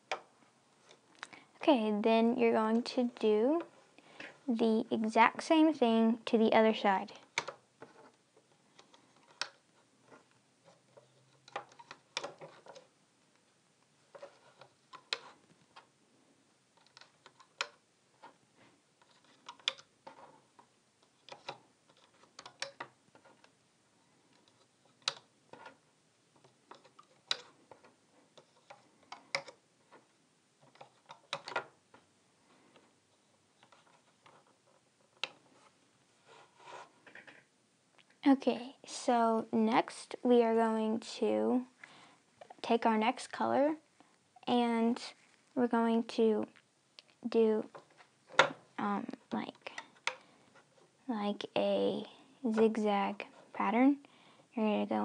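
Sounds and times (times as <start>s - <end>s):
rubber bands clicking on plastic pins: 7.2s - 8.1s, 8.7s - 12.9s, 14.1s - 15.9s, 16.8s - 18.4s, 19.0s - 23.6s, 24.2s - 25.8s, 26.4s - 32.1s.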